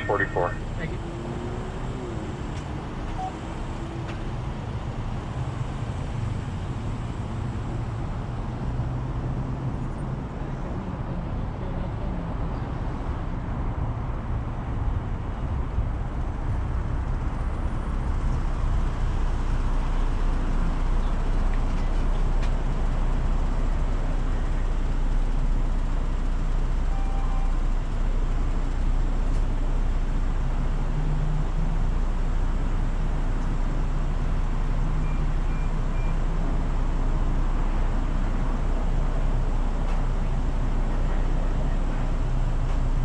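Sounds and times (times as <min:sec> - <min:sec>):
car engine idling: 0:00.0 - 0:03.8.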